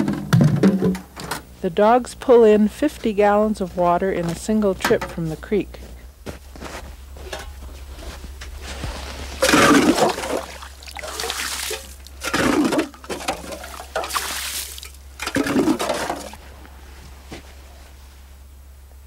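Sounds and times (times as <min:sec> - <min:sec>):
water splashing and pouring: 0:09.4 - 0:16.4.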